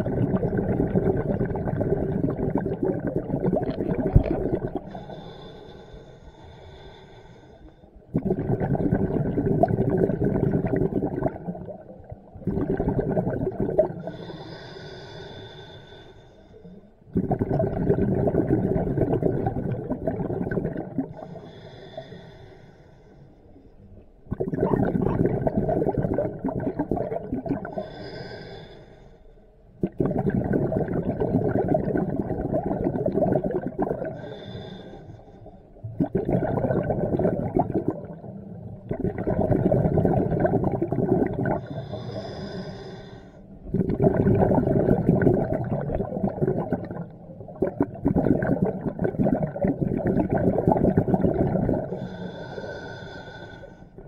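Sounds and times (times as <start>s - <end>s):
exhaled bubbles rushing: 0.0s - 5.0s, 8.1s - 14.1s, 17.1s - 21.2s, 24.3s - 27.8s, 29.8s - 34.3s, 35.8s - 41.9s, 43.6s - 52.1s.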